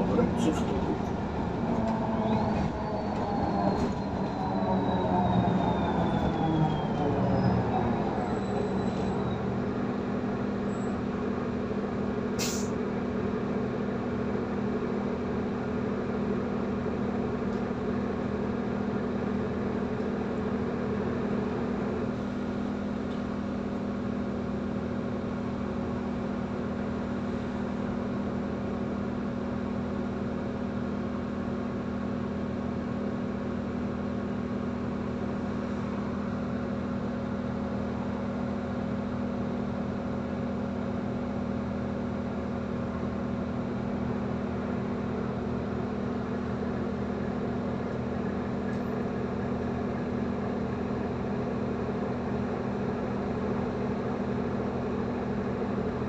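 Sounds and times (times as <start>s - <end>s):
bus drivetrain whine: 0.0s - 56.0s
bus engine idling: 0.0s - 56.0s
brief sharp hiss: 12.4s - 12.8s.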